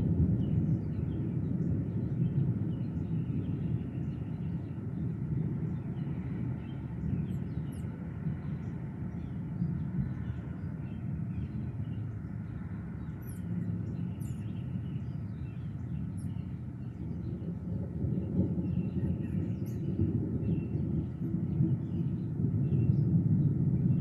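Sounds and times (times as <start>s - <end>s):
low outdoor rumble: 0.0s - 24.0s
birds chirping: 5.7s - 23.0s.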